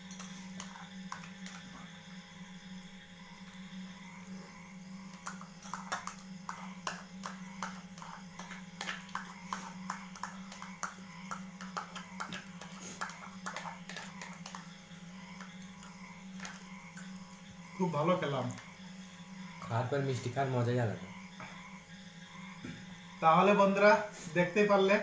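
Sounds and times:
steady low hum: 0.0s - 25.0s
spoons scraping plastic bowls: 0.2s - 1.8s, 5.1s - 16.7s.

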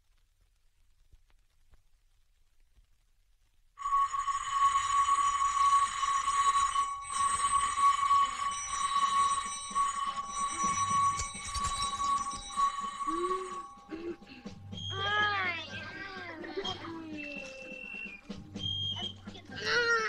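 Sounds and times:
alarm clock bell ringing: 3.8s - 19.2s.

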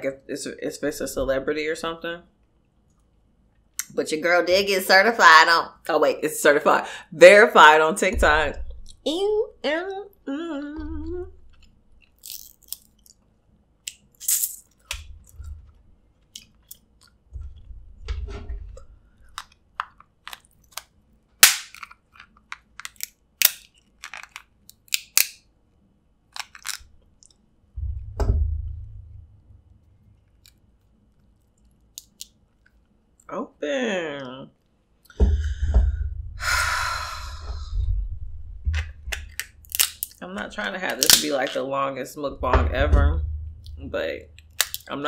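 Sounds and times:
low thumps: 8.0s - 9.1s, 10.6s - 11.7s, 14.9s - 16.0s, 17.3s - 19.1s, 27.7s - 30.2s, 35.2s - 39.7s, 42.2s - 44.6s
crab shells cracking: 11.4s - 15.5s, 16.2s - 17.2s, 19.1s - 25.5s, 26.3s - 27.4s, 30.2s - 32.9s, 38.8s - 40.2s, 40.9s - 41.5s, 44.3s - 44.9s.

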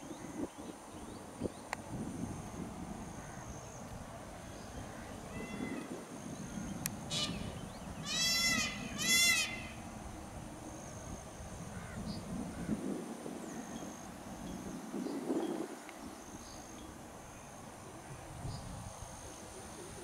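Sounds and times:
peafowl calling: 4.8s - 9.9s.

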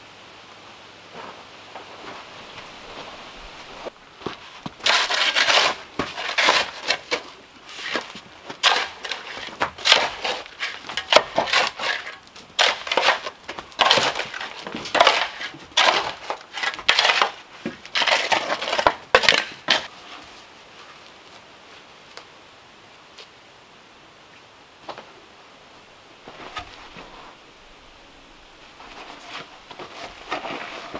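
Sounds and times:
digging tool scraping dirt: 1.2s - 20.2s, 28.7s - 30.9s.

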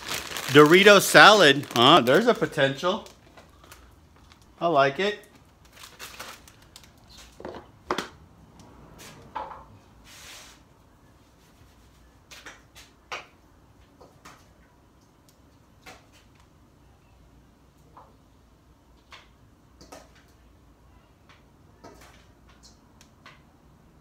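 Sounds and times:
salad rustling: 0.0s - 4.5s.

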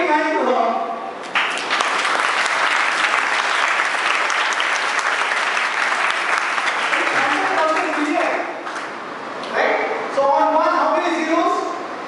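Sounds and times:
audience applause: 1.3s - 8.4s.

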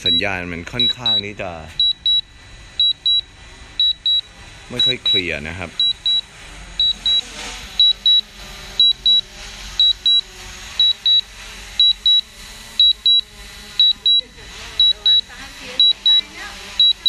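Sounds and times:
short high warning beeps: 0.0s - 3.2s, 3.8s - 7.2s, 7.8s - 8.2s, 8.8s - 9.2s, 9.8s - 10.2s, 10.8s - 11.2s, 11.8s - 13.2s, 13.8s - 14.2s, 14.8s - 16.2s, 16.8s - 17.0s
low background hum: 0.0s - 17.0s.

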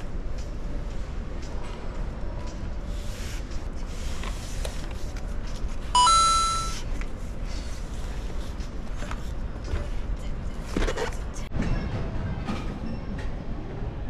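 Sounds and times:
two-tone electronic beep: 6.0s - 6.8s.

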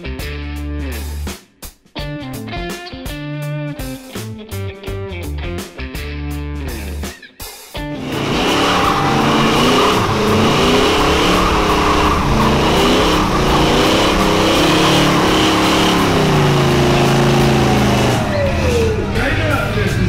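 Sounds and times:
car engine revving: 7.9s - 20.0s
tyres squealing: 8.0s - 19.6s.

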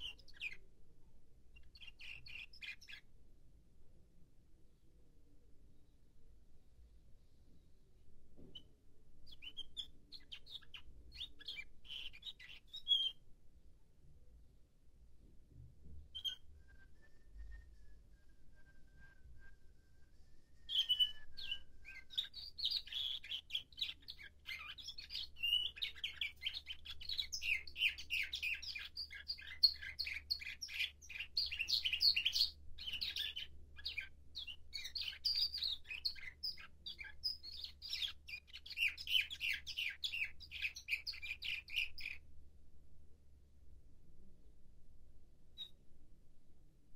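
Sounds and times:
canary singing trills: 0.0s - 0.7s, 1.5s - 3.1s, 8.5s - 13.2s, 16.1s - 16.5s, 20.7s - 42.2s.

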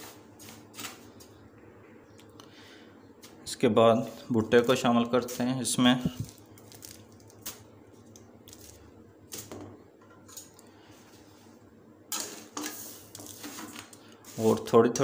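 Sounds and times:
foil crinkling: 6.1s - 9.5s
rustling scrape in salt: 12.2s - 14.7s.

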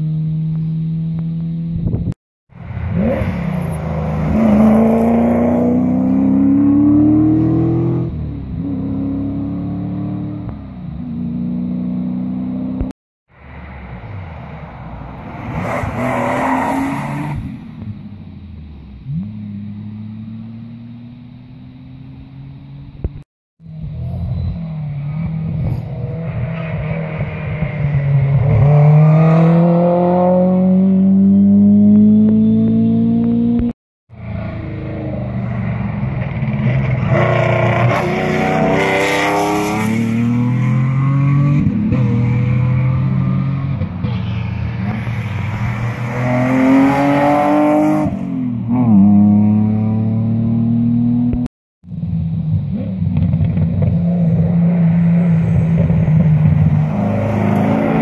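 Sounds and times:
rally car engine passing: 23.7s - 51.4s, 52.4s - 58.0s
rally car engine revving past: 24.0s - 33.7s, 45.4s - 51.4s.

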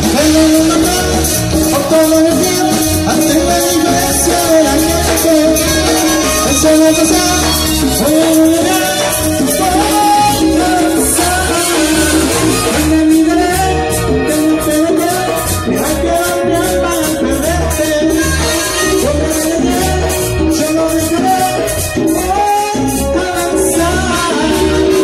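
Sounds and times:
pulsing bass beat: 0.0s - 21.4s
latin dance band music: 0.0s - 25.0s
saxophone melody: 0.0s - 25.0s.

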